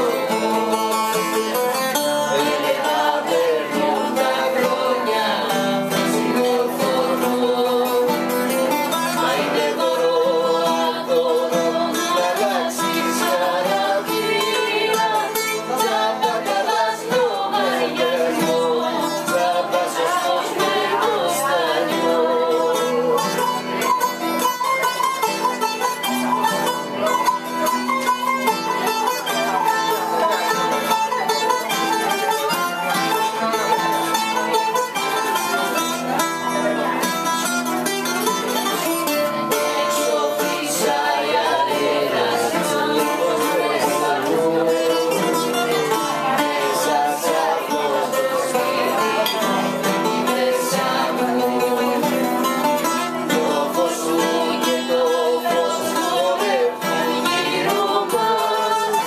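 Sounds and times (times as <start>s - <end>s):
acoustic guitar plucked: 0.0s - 59.0s
lute plucked: 0.0s - 59.0s
woman singing: 8.9s - 23.3s, 53.3s - 59.0s.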